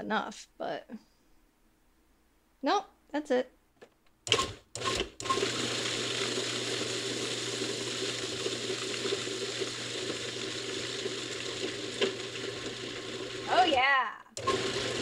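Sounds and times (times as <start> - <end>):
food processor running: 4.3 - 15.0.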